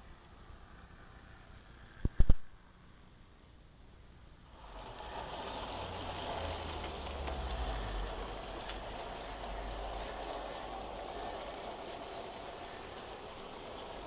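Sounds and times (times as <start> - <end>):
model train whirring rumble: 4.5 - 14.0.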